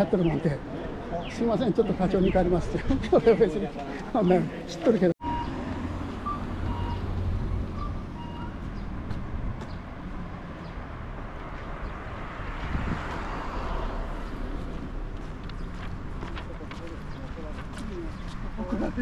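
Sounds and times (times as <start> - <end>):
road traffic rumble: 0.0 - 19.0
vehicle passing: 5.2 - 18.6.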